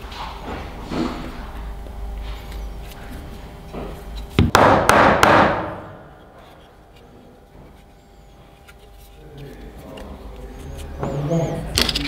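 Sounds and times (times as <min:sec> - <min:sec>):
loud knocks on wood: 0:04.4 - 0:06.1.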